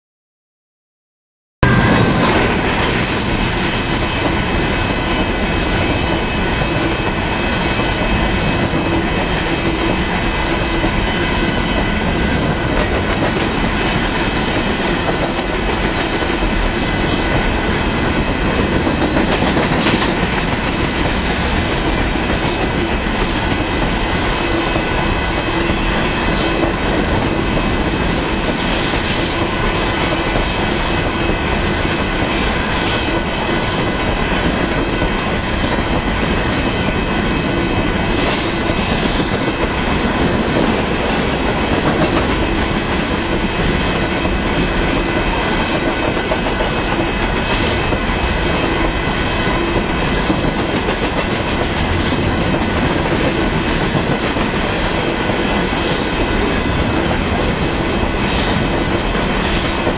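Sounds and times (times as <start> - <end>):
high-pitched tones: 1.6 - 3.5
train wheels rumbling on rails: 1.6 - 59.9.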